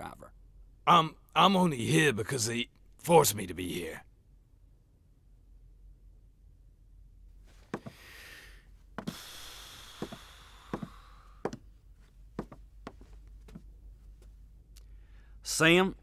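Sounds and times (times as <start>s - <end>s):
breathy rustling hiss: 7.8s - 11.5s.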